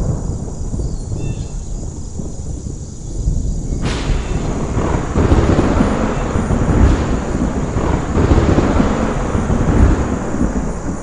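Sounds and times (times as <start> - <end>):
thunder rumbling: 0.0 - 11.0.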